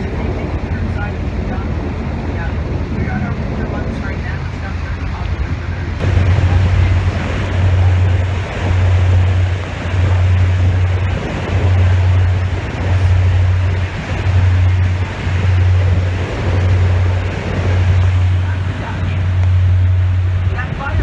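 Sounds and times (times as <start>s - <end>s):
low rumble: 0.0s - 21.0s
water noise: 0.0s - 21.0s
wind: 0.0s - 21.0s.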